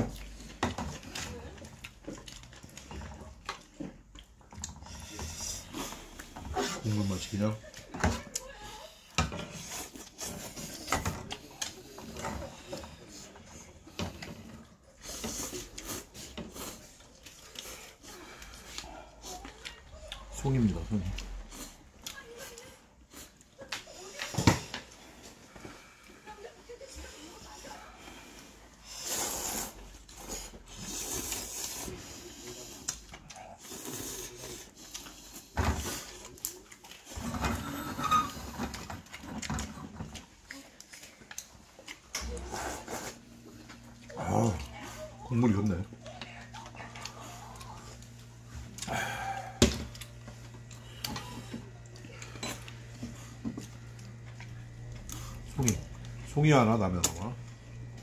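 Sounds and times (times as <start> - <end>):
chewing: 0.0 - 58.0
man slurping noodles: 29.0 - 29.8.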